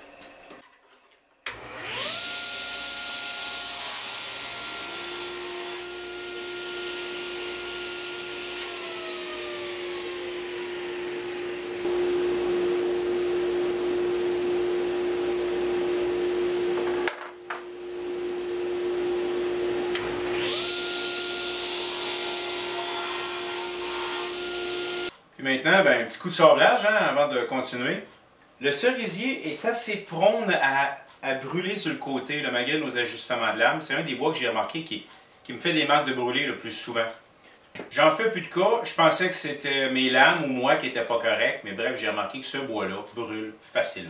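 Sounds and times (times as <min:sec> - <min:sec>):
table saw cutting wood: 0:01.5 - 0:25.1
dust collector humming: 0:06.2 - 0:21.7.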